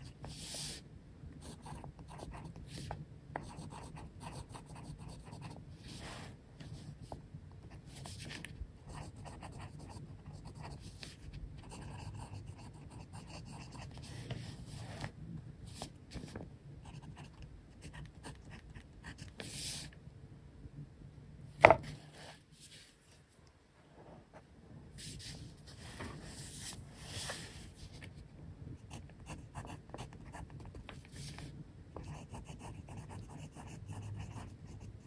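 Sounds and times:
pen scratching on paper: 0:01.4 - 0:06.0, 0:07.7 - 0:15.0, 0:28.9 - 0:31.4, 0:32.0 - 0:34.9.

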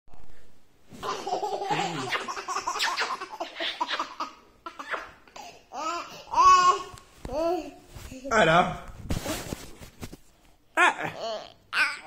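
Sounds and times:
young child laughing: 0:01.0 - 0:05.2.

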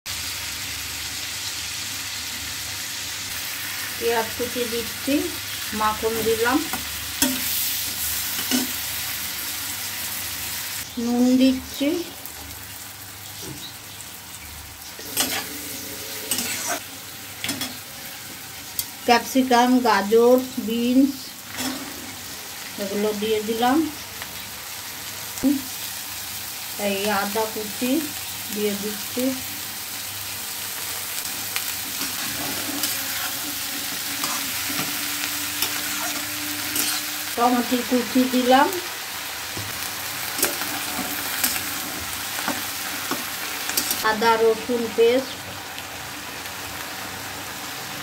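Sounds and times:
onions sizzling in butter: 0:00.1 - 0:48.0
metal spatula scraping wok: 0:15.0 - 0:17.8, 0:21.5 - 0:22.4, 0:31.6 - 0:37.4.

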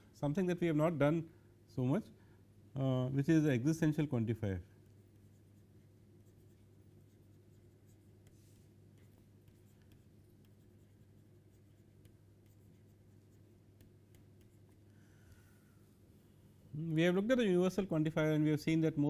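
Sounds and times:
low steady hum: 0:00.0 - 0:19.0
stylus scratching on tablet: 0:05.0 - 0:14.9.

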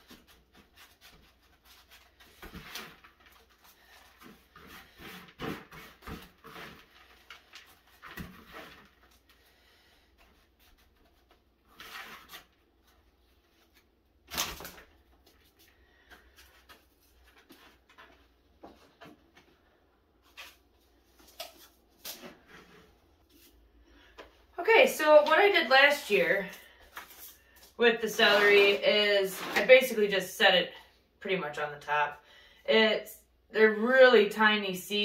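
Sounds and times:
soil scraped in plastic tub: 0:28.0 - 0:29.9.

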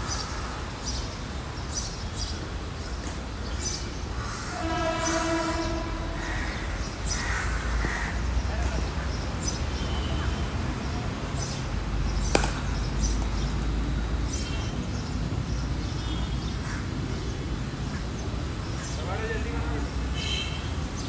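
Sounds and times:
steady low rumble: 0:05.0 - 0:08.4.

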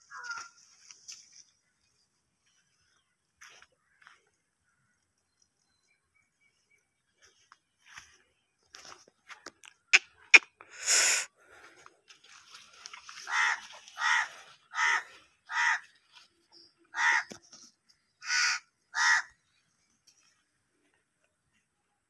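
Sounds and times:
crow cawing: 0:00.0 - 0:00.6, 0:13.1 - 0:16.0, 0:16.9 - 0:17.4, 0:18.2 - 0:19.4.

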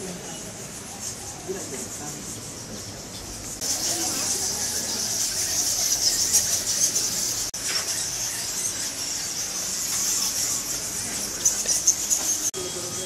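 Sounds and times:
shrill insect chorus: 0:00.1 - 0:13.0.

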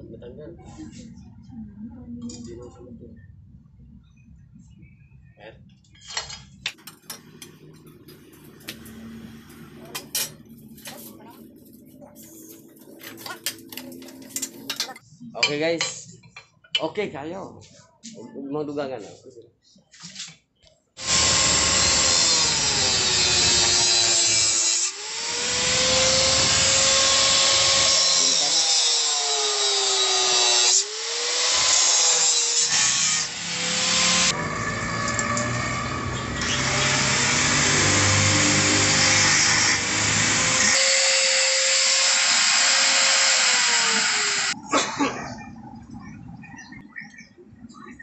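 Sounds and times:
angle grinder grinding steel: 0:21.0 - 0:44.6.

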